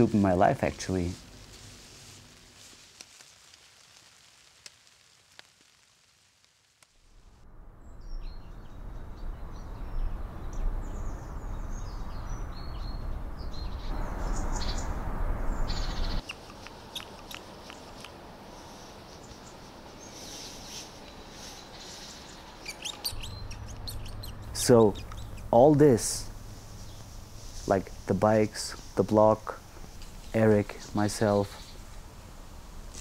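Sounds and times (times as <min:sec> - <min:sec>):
loud low rushing noise: 0:07.0 - 0:16.2
small birds chirping: 0:07.8 - 0:33.0.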